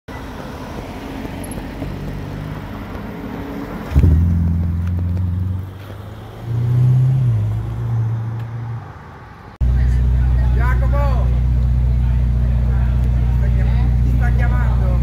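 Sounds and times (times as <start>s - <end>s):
sports car accelerating past: 1.2s - 9.0s
car engine running: 9.6s - 15.0s.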